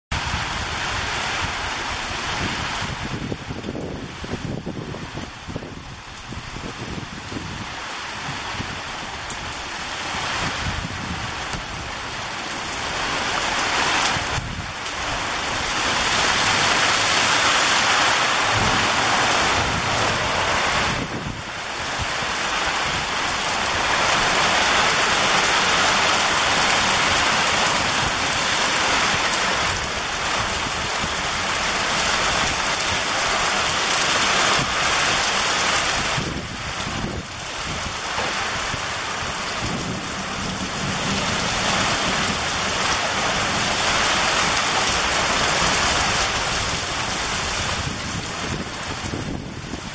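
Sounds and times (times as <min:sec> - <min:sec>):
heavy rain pouring: 0:00.1 - 0:49.9
low rumbling thunder: 0:12.8 - 0:49.9.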